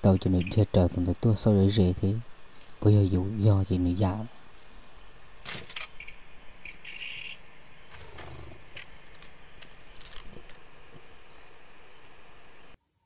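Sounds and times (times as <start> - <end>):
high insect drone: 0.0 - 13.0
faint clicks and rustles: 7.8 - 12.2.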